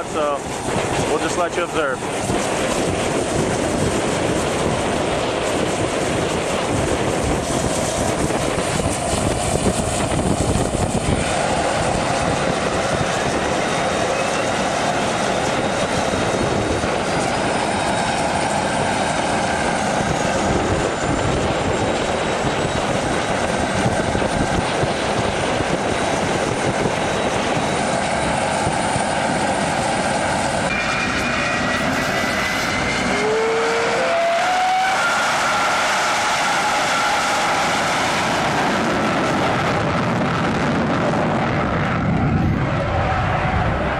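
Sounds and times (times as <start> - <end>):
jet engine spooling up: 0.0 - 43.9
turbine whine: 0.0 - 43.9
brief rising tones: 30.7 - 37.5.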